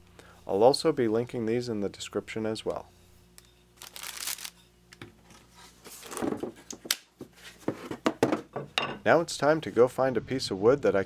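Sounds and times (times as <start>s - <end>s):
plastic sleeves crinkling: 3.8s - 4.6s, 5.8s - 7.1s.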